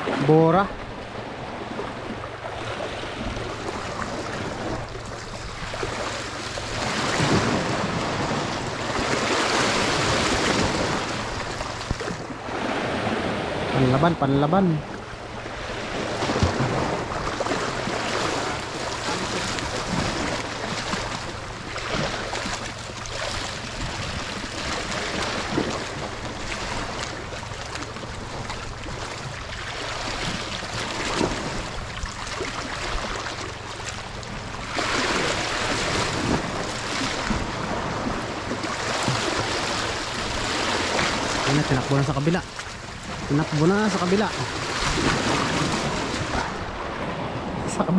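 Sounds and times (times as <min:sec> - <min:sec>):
waves lapping and washing: 0:00.0 - 0:47.9
wind noise on microphone: 0:03.0 - 0:13.9, 0:23.5 - 0:27.4, 0:34.3 - 0:41.7.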